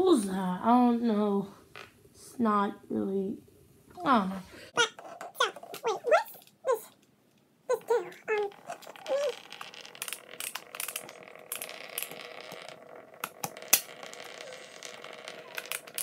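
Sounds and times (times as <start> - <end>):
plastic toy parts clicking: 7.8 - 12.6, 13.2 - 13.9.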